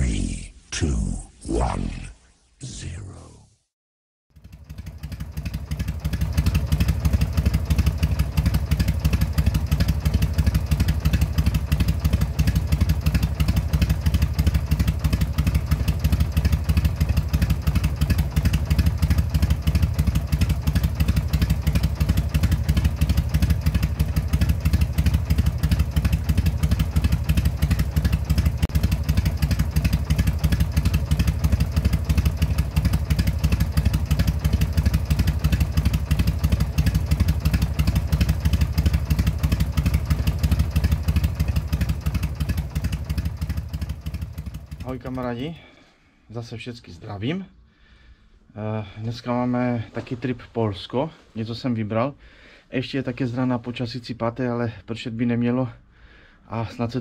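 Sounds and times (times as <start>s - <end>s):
motorcycle engine running: 4.3s - 45.8s.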